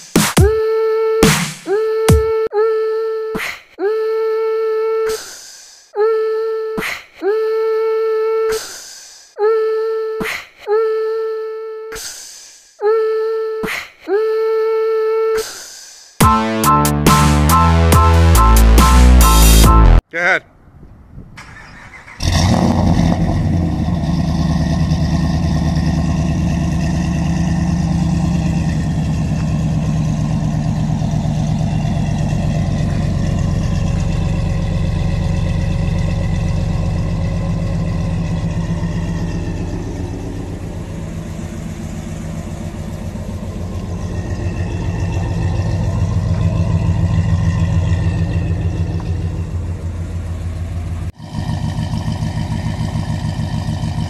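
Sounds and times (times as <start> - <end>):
engine starting and idling: 21.3 - 54.0.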